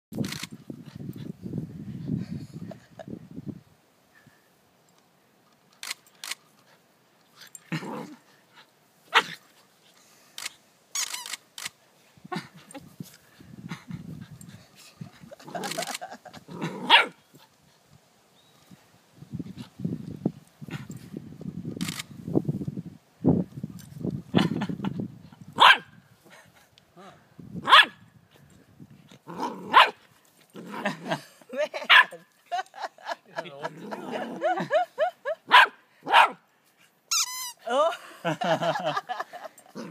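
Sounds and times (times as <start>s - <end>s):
puppy barking: 25.6s - 25.9s, 27.7s - 28.0s, 29.7s - 30.0s, 31.9s - 32.1s, 35.5s - 36.4s
squeaky ball squeaks: 37.1s - 37.6s.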